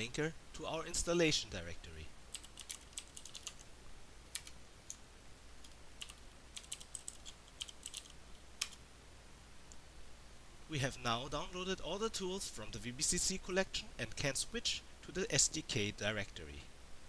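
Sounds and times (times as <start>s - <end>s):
keyboard typing: 2.3s - 3.6s, 4.3s - 5.0s, 5.6s - 8.8s.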